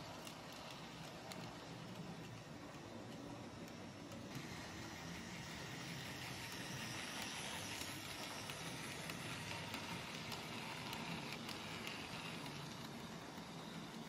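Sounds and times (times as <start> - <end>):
light irregular clicks: 0.0 - 4.4
model train running on track: 0.0 - 14.0.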